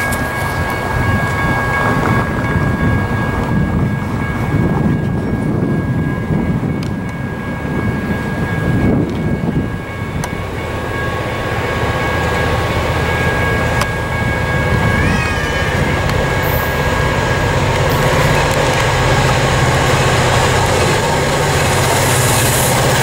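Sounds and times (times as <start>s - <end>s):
diesel locomotive rumble: 0.0s - 23.0s
wind buffeting microphone: 0.0s - 23.0s.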